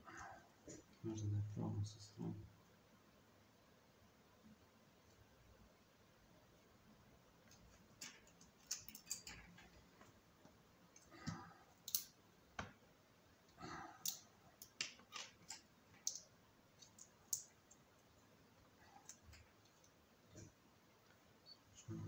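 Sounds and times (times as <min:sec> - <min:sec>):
plastic tools clicking and tapping: 0:07.4 - 0:09.8, 0:14.0 - 0:17.9.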